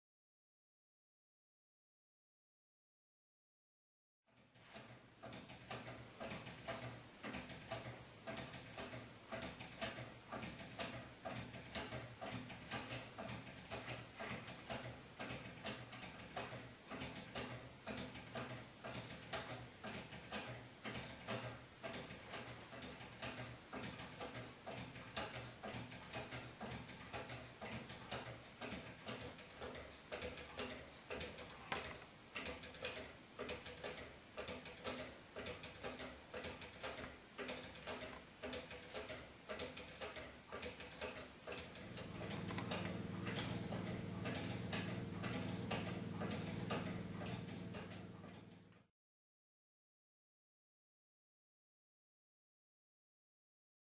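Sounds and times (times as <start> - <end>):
wooden escapement ticking: 5.3 - 48.6.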